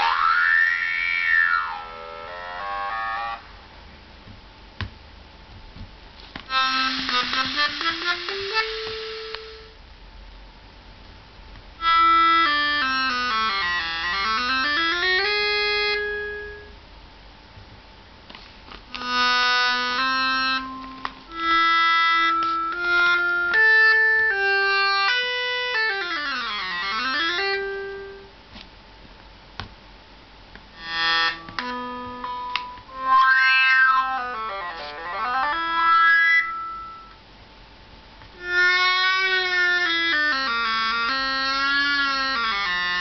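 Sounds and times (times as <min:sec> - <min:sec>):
synthesizer notes: 0:30.8 - 0:37.2.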